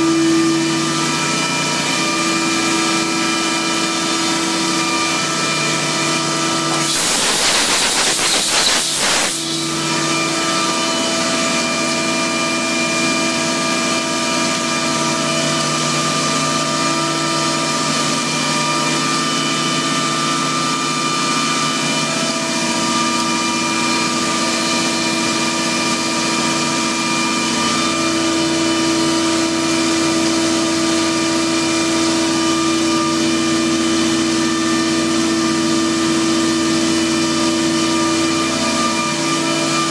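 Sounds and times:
loud hiss: 6.7s - 9.8s.

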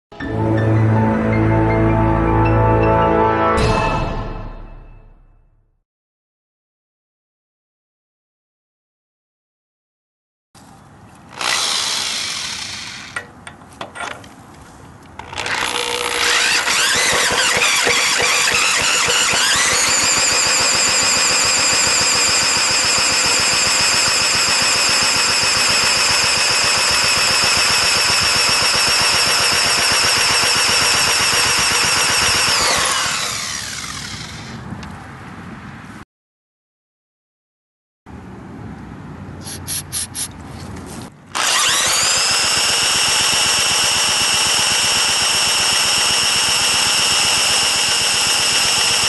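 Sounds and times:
electric drill whining: 11.3s - 13.3s, 15.2s - 34.6s, 41.4s - 49.0s.

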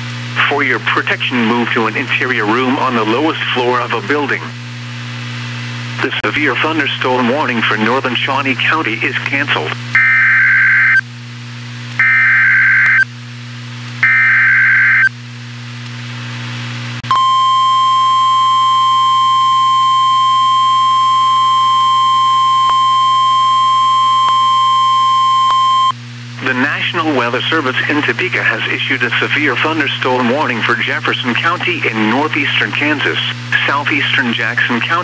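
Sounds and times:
steady alarm tone: 10.0s - 11.0s, 12.0s - 13.1s, 14.0s - 15.1s, 17.1s - 25.9s
data tone bursts: 12.0s - 13.0s, 14.0s - 15.1s, 17.1s - 25.9s.

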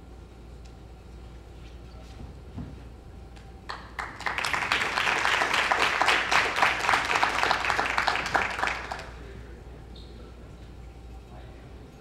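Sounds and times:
group of people applauding: 3.7s - 9.2s.

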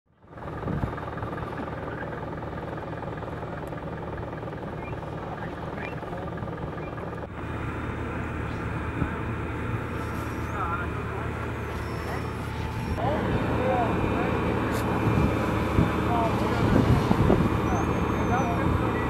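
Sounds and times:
fire engine droning: 0.1s - 19.0s
faint voices: 4.8s - 7.1s, 7.8s - 19.0s.

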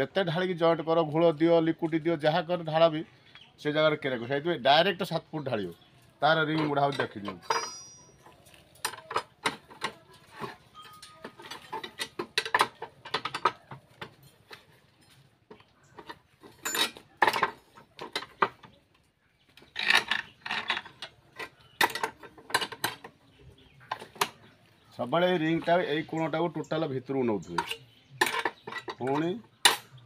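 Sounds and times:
metal rod rattling: 5.7s - 15.2s, 15.8s - 18.8s, 19.6s - 24.4s, 27.4s - 30.0s
metal rod clicking and clanking: 6.4s - 18.7s, 19.6s - 23.2s, 27.4s - 30.0s.

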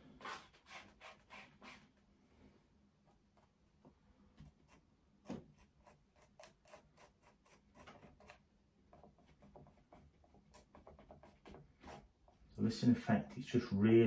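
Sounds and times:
palette knife scraping paint: 0.0s - 1.9s, 4.6s - 12.3s.

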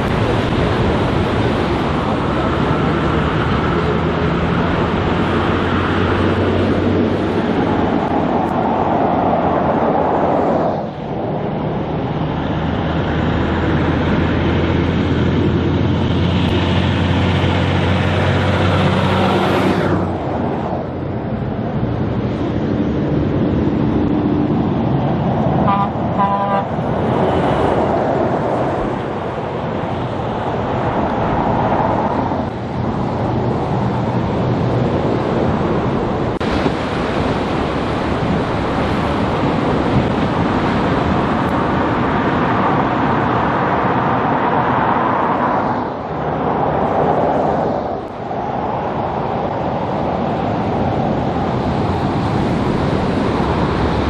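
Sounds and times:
trucks and cars driving past: 0.0s - 54.0s
vehicle horn toot: 25.6s - 26.7s.

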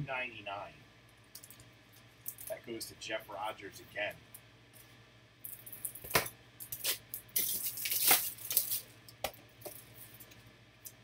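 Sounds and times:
plastic packaging rustling: 6.8s - 8.9s.

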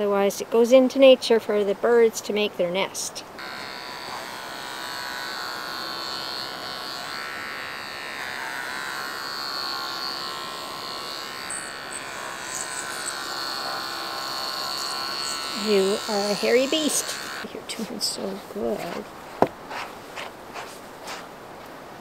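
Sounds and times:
electric hair clippers buzzing: 3.4s - 17.5s.

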